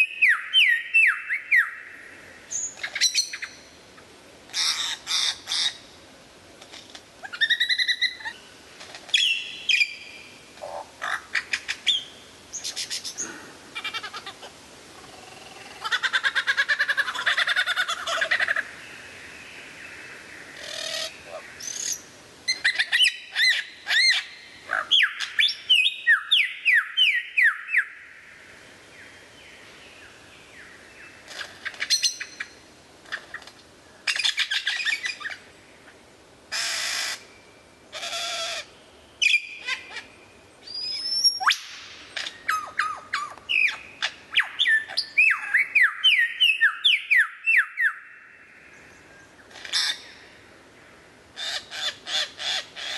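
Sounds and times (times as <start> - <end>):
lyrebird whistled song: 0.0 - 1.9, 20.7 - 28.0, 40.6 - 48.2.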